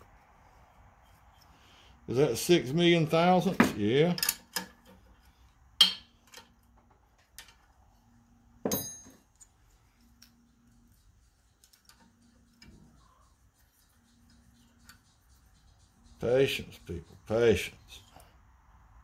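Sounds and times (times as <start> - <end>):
metallic clink with short ring: 8.7 - 9.2.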